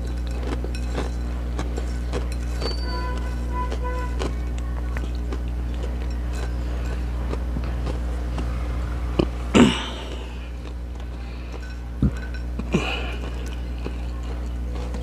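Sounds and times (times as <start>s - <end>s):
chewing crunchy snack: 0.0s - 15.0s
low electrical hum: 0.0s - 15.0s
falling mouth sound: 9.2s - 10.6s.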